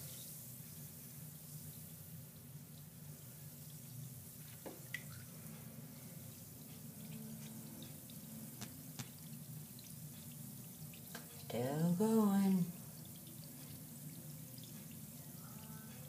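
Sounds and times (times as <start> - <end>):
bath bomb fizzing: 0.0 - 16.0
small drip-like clicks: 3.7 - 5.3, 6.2 - 11.6, 12.7 - 16.0.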